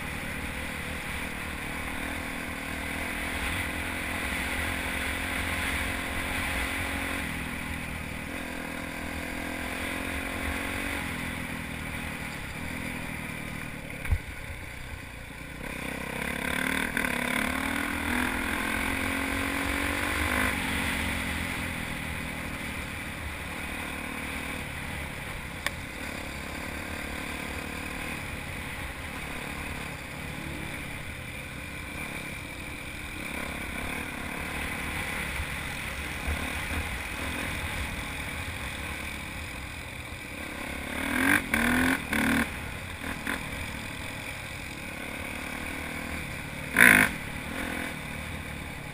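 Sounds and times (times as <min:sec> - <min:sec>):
dirt bike engine shifting gears: 0:45.2 - 0:48.0.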